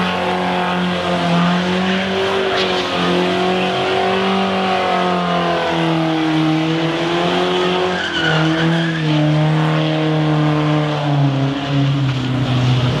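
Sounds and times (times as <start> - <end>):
car engine revving high: 0.0 - 13.0
tyres squealing: 7.5 - 9.2.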